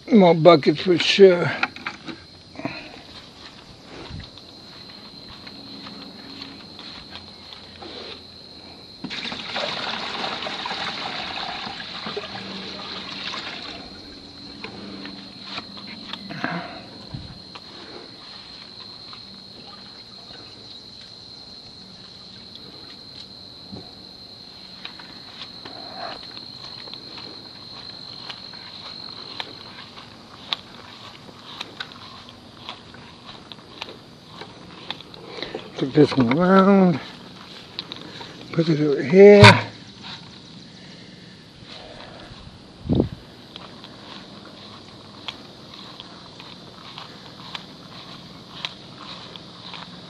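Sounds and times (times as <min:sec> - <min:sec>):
insects trilling: 0:00.0 - 0:50.0
water pouring from a bucket: 0:09.0 - 0:14.0
footsteps and handling clicks: 0:24.8 - 0:38.7, 0:43.4 - 0:50.0.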